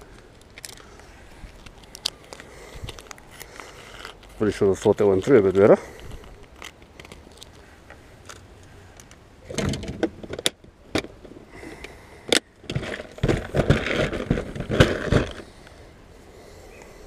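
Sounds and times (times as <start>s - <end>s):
handling clicks and knocks: 6.3s - 15.4s.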